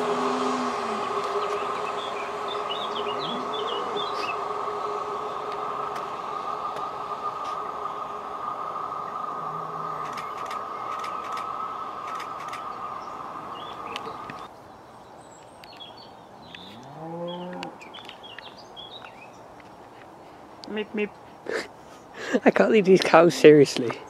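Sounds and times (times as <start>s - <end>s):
diesel train engine whine and rumble: 0.0s - 14.6s
birds chirping: 0.0s - 24.0s
cow lowing: 2.9s - 4.4s, 9.3s - 10.1s.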